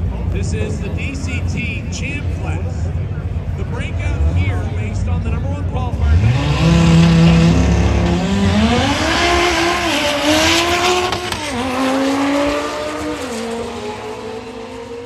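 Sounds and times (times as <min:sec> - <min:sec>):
race car engine revving and accelerating: 0:03.6 - 0:15.0.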